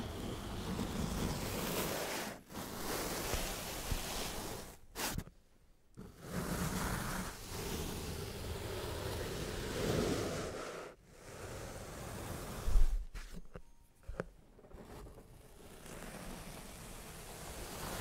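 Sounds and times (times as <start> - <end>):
grainy hiss of sand being cut: 0.0 - 5.3, 6.1 - 12.9, 16.0 - 18.0.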